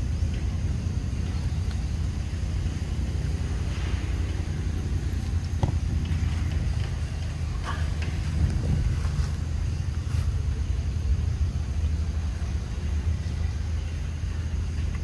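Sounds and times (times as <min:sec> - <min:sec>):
wind rumbling on microphone: 0:00.0 - 0:15.0
sharp tick: 0:01.6 - 0:01.9.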